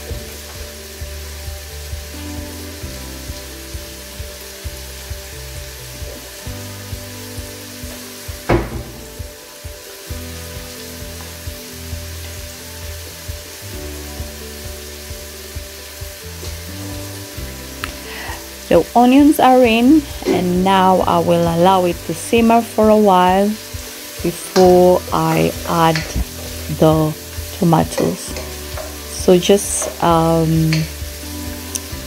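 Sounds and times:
background music with a beat: 0.0 - 19.3, 26.0 - 32.0
onions sizzling in a pot: 0.0 - 32.0
sharp knock: 8.5 - 9.1.

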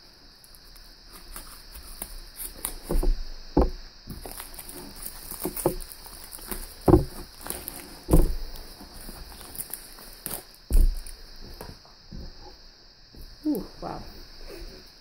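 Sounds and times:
dull knocks: 2.8 - 4.2, 6.8 - 7.4, 8.0 - 8.6, 10.7 - 12.4
wrapper crinkling and tearing: 4.1 - 10.5.

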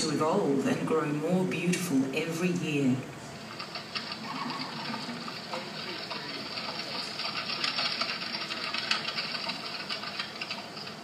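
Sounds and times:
rapid mechanical clicking and clattering: 3.4 - 11.0.

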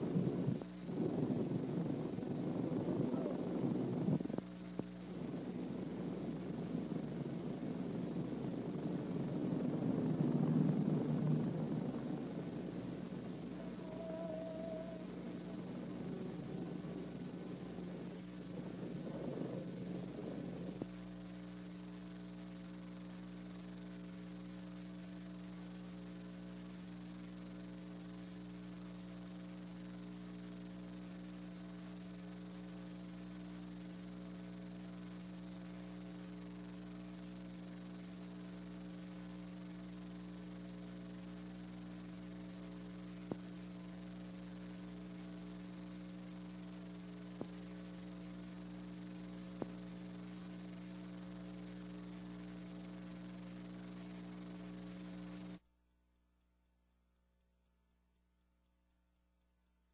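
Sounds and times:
light hiss: 0.0 - 55.6
electrical mains hum: 0.0 - 55.7.

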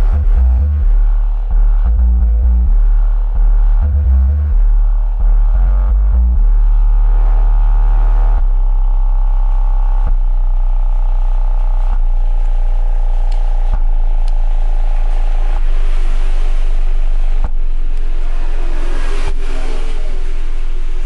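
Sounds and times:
deep bass electronic music: 0.0 - 21.0.

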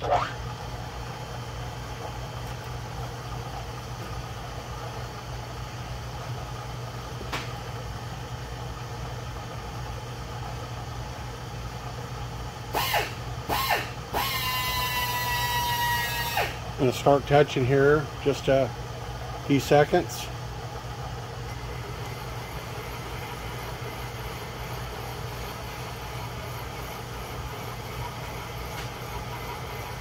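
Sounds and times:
milling machine running: 12.4 - 30.0.

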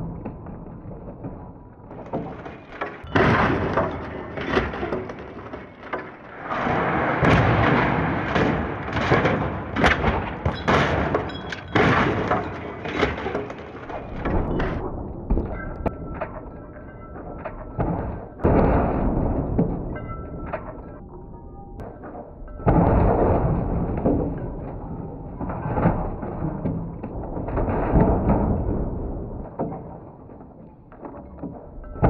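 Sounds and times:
glass breaking: 8.3 - 14.8.

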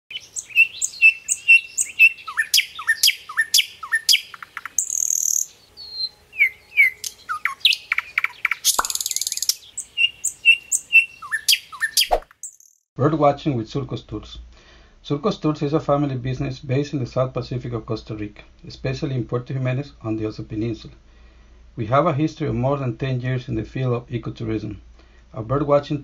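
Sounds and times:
bird chirps and whistles: 0.1 - 12.8
harsh buzzy bird calls: 0.1 - 12.8.

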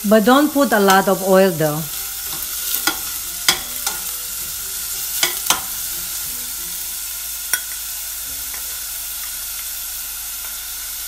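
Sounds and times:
onions sizzling in hot oil: 0.0 - 11.0
spatula scraping pan: 1.9 - 9.4.

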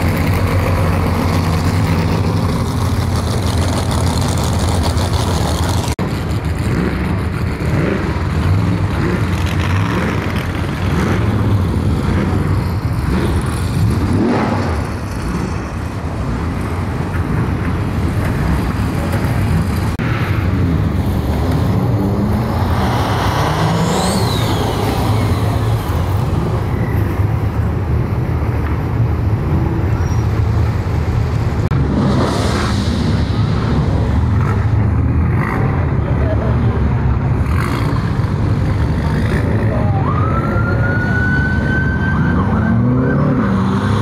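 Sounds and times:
engines rumbling at low revs: 0.0 - 44.0
high whistling tone gliding down: 23.8 - 25.7.

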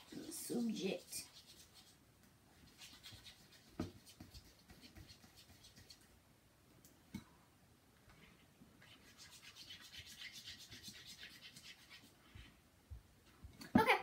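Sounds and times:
utensil stirring slime in a bowl: 0.0 - 6.2, 8.3 - 12.6.

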